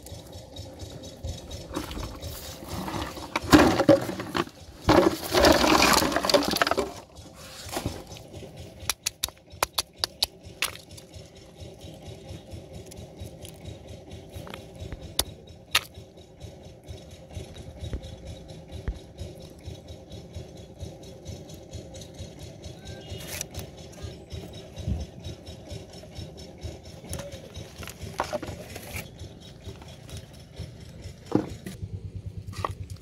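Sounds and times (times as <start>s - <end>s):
plastic bottles rattling in basin: 1.6s - 8.1s, 27.1s - 29.0s
snail shells cracking on metal: 8.8s - 11.1s.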